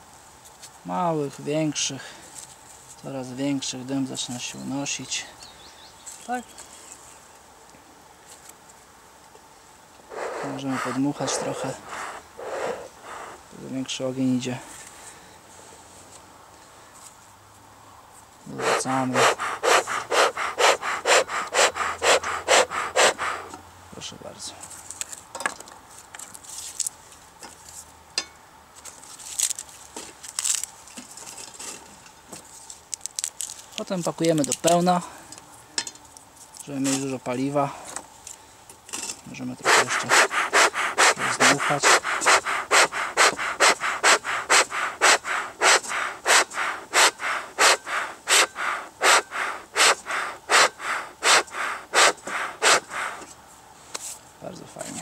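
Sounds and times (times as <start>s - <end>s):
bellows puffing hissing air: 10.0s - 13.7s, 18.5s - 23.6s, 39.4s - 54.1s
rotten wood crackling: 32.9s - 34.8s.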